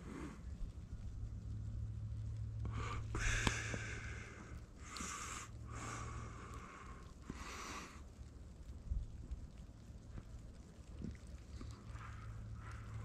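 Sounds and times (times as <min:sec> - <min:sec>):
low steady rumble: 0:00.0 - 0:13.0
person breathing out heavily: 0:02.7 - 0:08.0.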